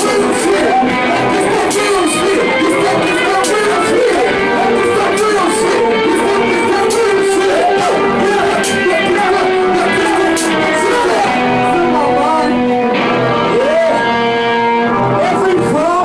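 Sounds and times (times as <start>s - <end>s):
person singing into a microphone: 0.0s - 14.4s
electric guitar held tones: 0.0s - 15.7s
keyboard synthesizer: 0.0s - 16.0s.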